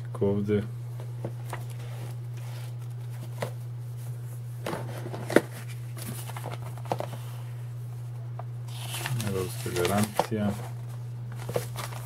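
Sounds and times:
steady low hum: 0.0 - 12.0
paper booklet rustling: 4.8 - 7.4, 8.7 - 12.0.

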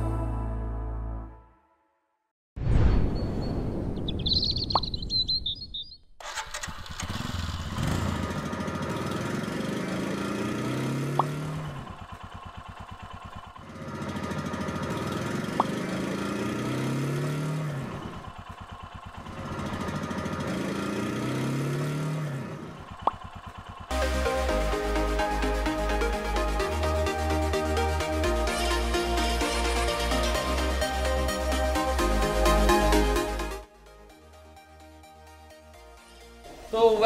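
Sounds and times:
motorcycle engine revving: 6.2 - 33.7.

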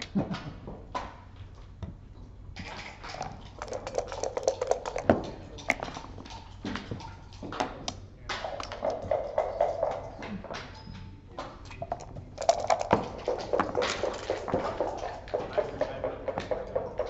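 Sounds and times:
dice rattling in a cup: 2.6 - 6.2, 11.8 - 14.9
dice clattering on a board: 3.1 - 6.2, 11.8 - 15.6
checkers clicking: 11.8 - 14.0.

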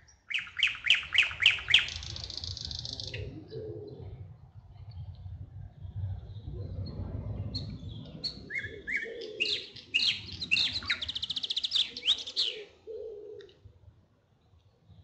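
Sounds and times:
songbird singing: 0.0 - 13.6
low rumble: 3.2 - 8.9.

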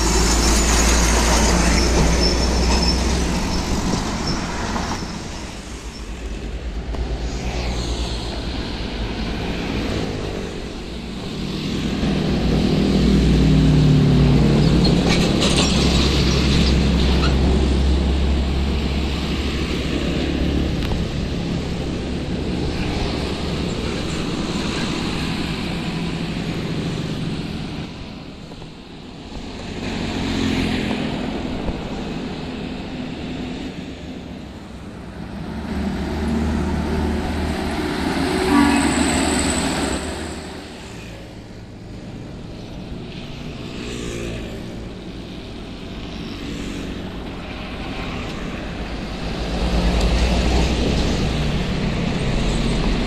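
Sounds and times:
trucks and bus driving past: 0.0 - 53.0.

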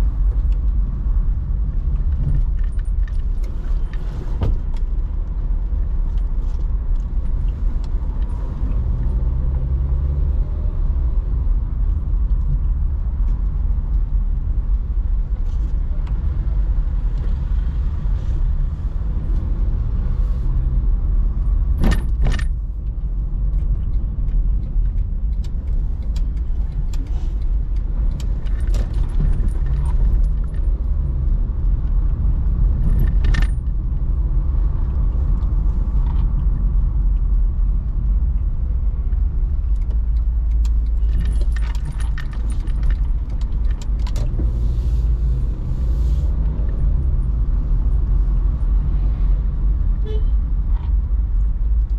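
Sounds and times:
car engine and road noise: 0.0 - 51.9
light clicks and rattles: 21.8 - 34.0, 34.8 - 44.6.

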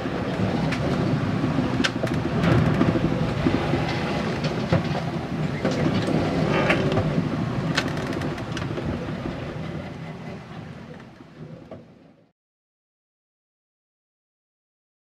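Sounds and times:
low rumble inside boat cabin: 0.0 - 12.3.

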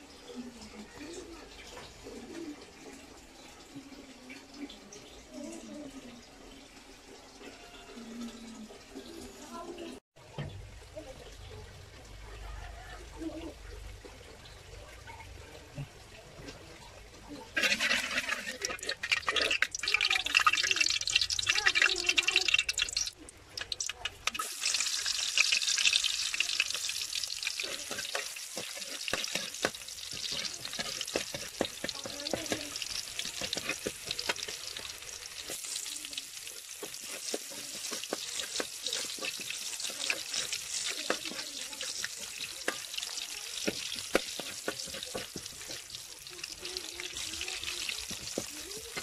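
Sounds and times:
oil sizzling in a wok: 17.0 - 49.0
metal ladle scraping a pan: 17.5 - 19.7, 26.6 - 35.8, 36.7 - 42.9.

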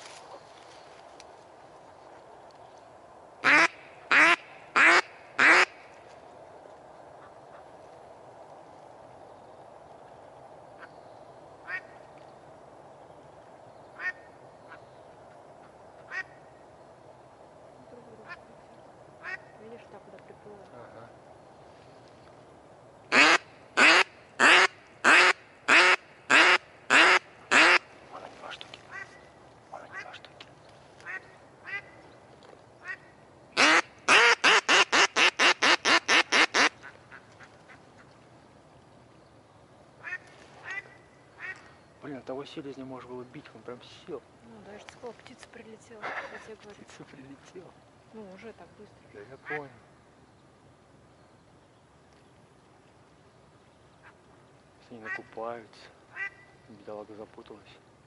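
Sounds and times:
duck quacking: 3.4 - 5.8, 23.1 - 27.9, 32.8 - 37.8.

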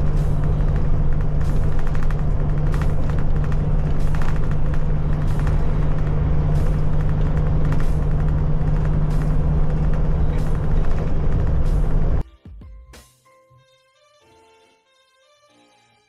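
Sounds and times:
bus engine drone: 0.0 - 12.2
tyre and road rumble: 0.0 - 12.2.

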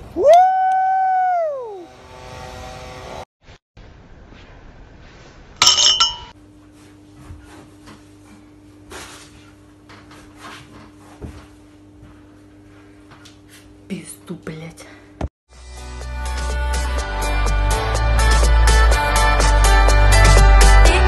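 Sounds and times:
glass bottle clinking: 5.6 - 6.3.

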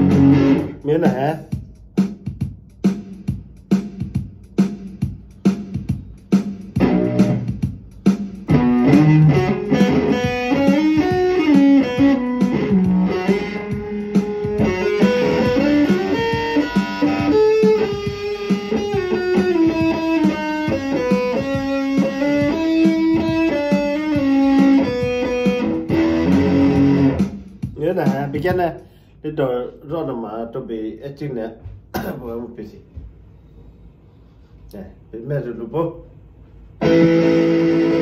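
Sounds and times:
electric guitar melody: 0.0 - 0.8, 6.7 - 7.8, 8.4 - 27.4, 36.8 - 38.0.

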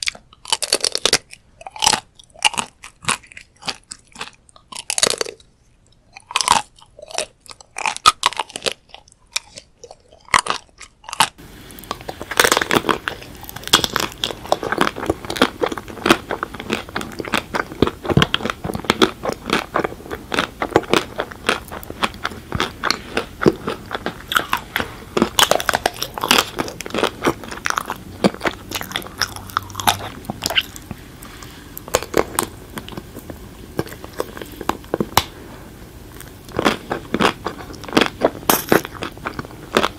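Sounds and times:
soft chewing: 0.0 - 39.9
chocolate shell crunching: 6.2 - 35.4, 36.1 - 39.9
steady background hiss: 11.4 - 39.9.

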